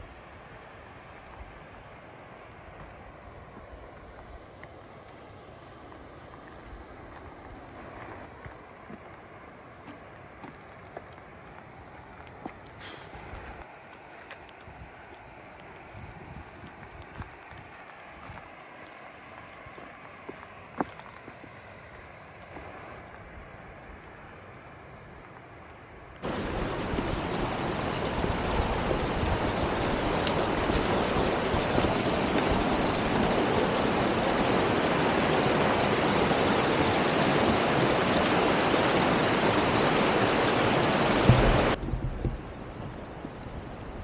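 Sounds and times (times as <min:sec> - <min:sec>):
loud rushing water: 0:26.2 - 0:41.8.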